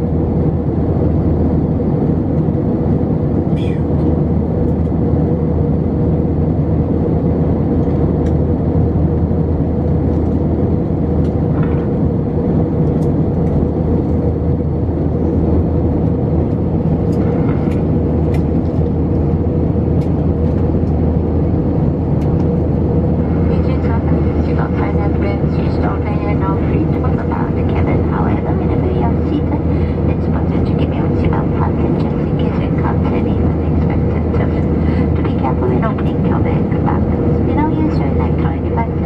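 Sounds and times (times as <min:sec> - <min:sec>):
aircraft engine drone: 0:00.0 - 0:39.0
steady cabin hum: 0:00.0 - 0:39.0
rushing airflow: 0:29.1 - 0:32.3, 0:34.0 - 0:35.5.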